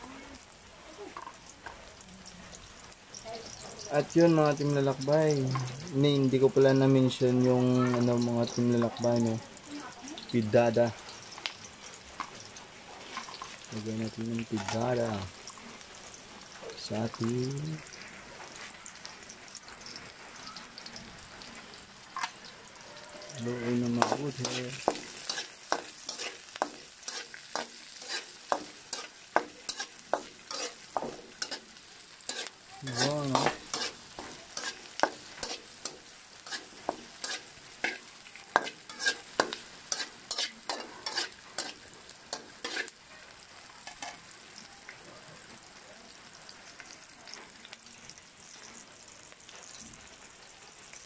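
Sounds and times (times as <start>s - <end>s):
food sizzling in oil: 0.0s - 51.0s
stirring scraping a wok: 23.9s - 43.0s.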